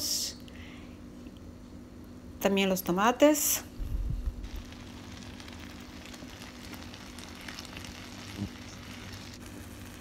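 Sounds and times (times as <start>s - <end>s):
rice sizzling in a pan: 4.3s - 10.0s.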